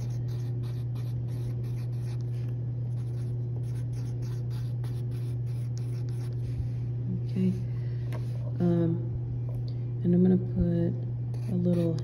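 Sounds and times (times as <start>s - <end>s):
pencil scratching on paper: 0.0s - 6.6s, 11.4s - 12.0s
steady low hum: 0.0s - 12.0s.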